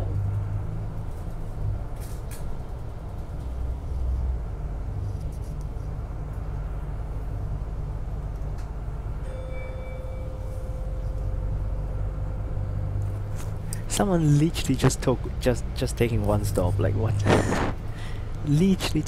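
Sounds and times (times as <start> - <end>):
bus engine rumbling: 0.0 - 19.0
stop-request bell chime: 9.2 - 11.0.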